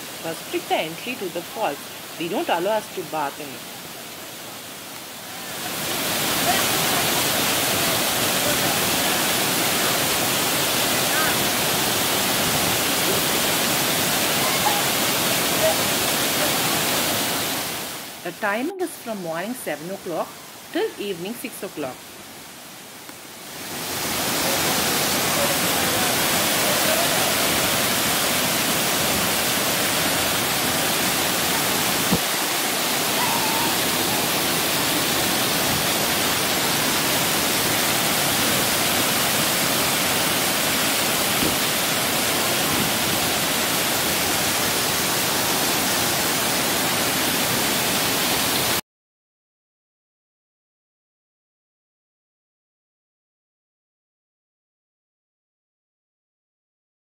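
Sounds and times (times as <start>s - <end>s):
waterfall rushing onto rocks: 0.0s - 0.4s, 3.6s - 18.2s, 22.0s - 48.8s.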